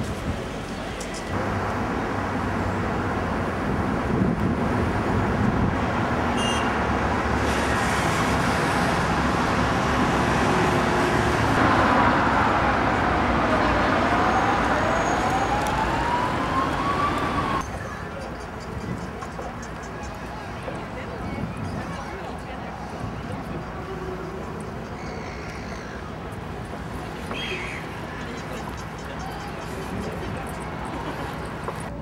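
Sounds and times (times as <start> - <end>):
road traffic: 0.0 - 32.0
siren wailing: 12.7 - 17.6.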